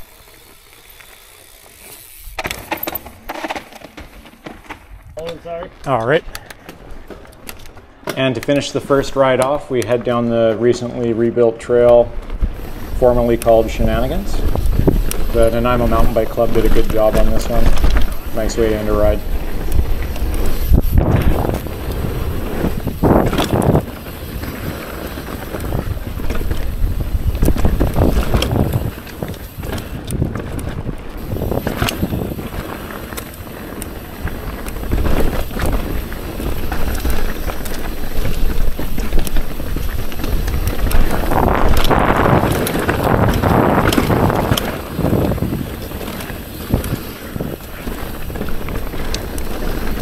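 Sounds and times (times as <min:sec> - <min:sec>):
bike knocking and rattling: 0:00.0 - 0:50.0
bike tyres on dirt: 0:00.0 - 0:50.0
wind on microphone: 0:12.4 - 0:32.8, 0:34.1 - 0:50.0.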